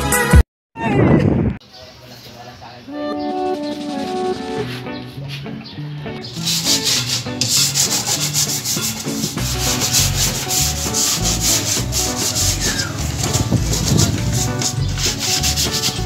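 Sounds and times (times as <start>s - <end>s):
sandpaper sanding wood: 3.8s - 4.9s, 6.3s - 16.0s.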